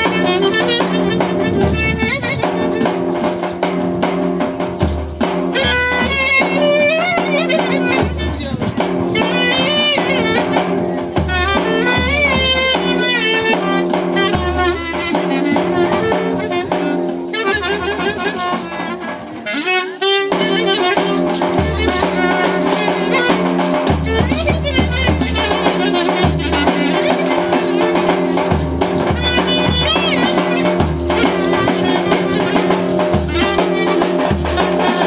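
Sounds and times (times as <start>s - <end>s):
clarinet melody: 0.0s - 3.5s, 5.5s - 35.0s
bass drum beats: 0.0s - 16.8s
hand drum: 0.0s - 35.0s.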